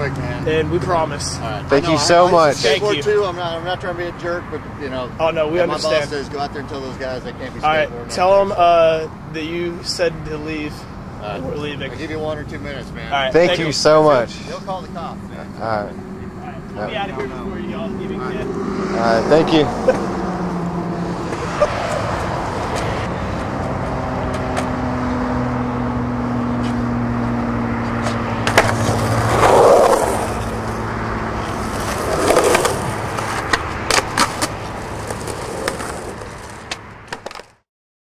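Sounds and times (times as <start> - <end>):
skateboard wheels rolling on concrete: 26.4 - 37.6
skateboard deck clacks: 28.4 - 29.9, 31.6 - 37.6.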